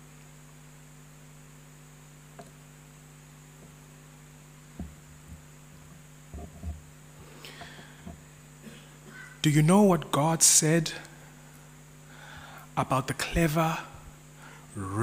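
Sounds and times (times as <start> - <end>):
electrical mains hum: 0.0 - 15.0
soft low thumps: 4.7 - 5.5.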